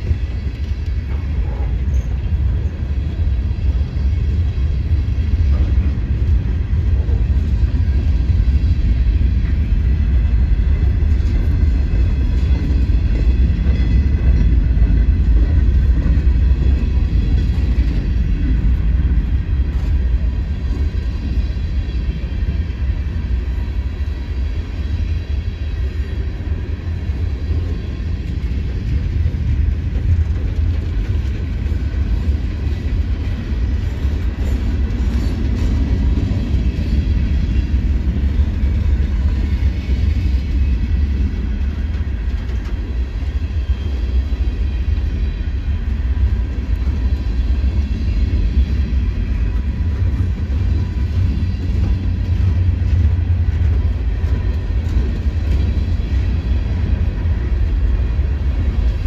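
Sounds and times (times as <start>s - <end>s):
train wheels rumbling on rail: 0.0s - 59.0s.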